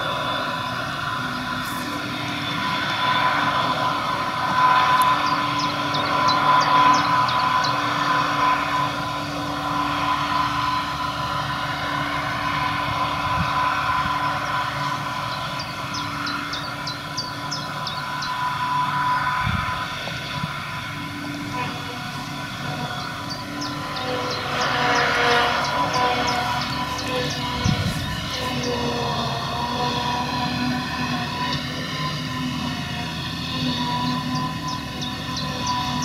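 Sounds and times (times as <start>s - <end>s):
forage harvester drone and whine: 0.0s - 36.0s
tractor engine: 0.0s - 36.0s
bird singing falling notes: 1.9s - 9.0s, 13.6s - 19.4s.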